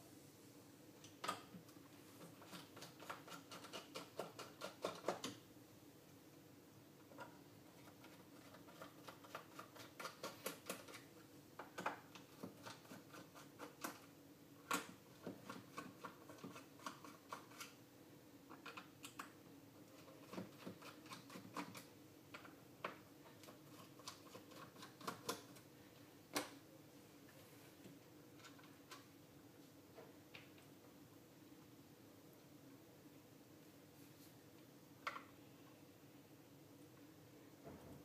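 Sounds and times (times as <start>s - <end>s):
faint steady hum: 0.0s - 38.0s.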